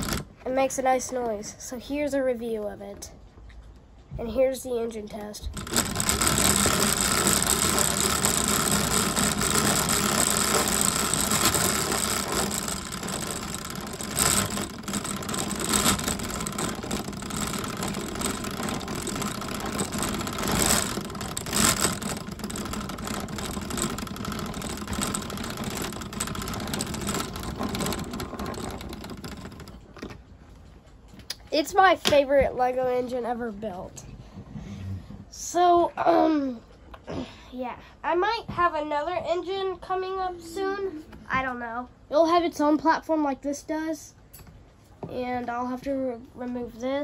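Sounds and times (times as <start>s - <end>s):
plastic parts clattering and rattling: 0.0s - 0.4s, 5.4s - 30.4s.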